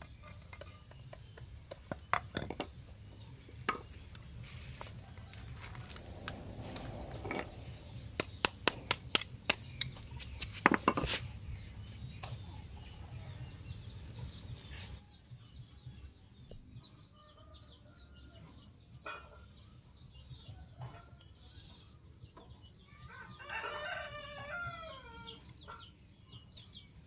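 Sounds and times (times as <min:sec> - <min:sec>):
small birds chirping: 0:00.0 - 0:27.0
sharp taps: 0:08.2 - 0:10.5.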